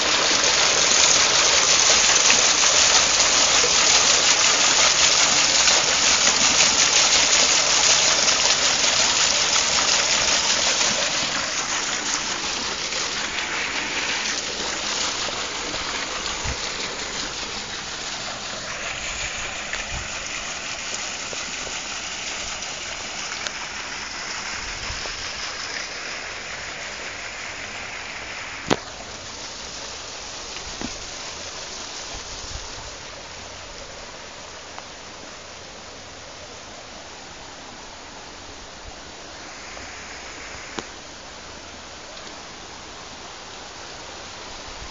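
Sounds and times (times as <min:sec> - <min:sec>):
water splashing on wheel paddles: 0:00.0 - 0:34.8.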